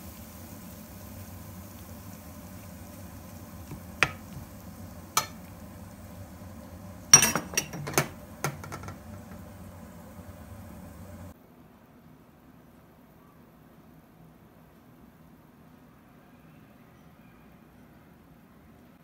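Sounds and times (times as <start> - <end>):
steady low hum: 0.0 - 11.4
metal spatula clinking on a plate: 7.2 - 8.1.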